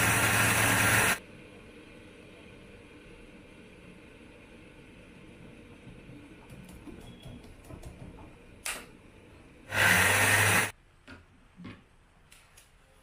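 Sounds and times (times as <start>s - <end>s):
mixer grinder running: 0.0s - 1.2s, 9.7s - 10.7s.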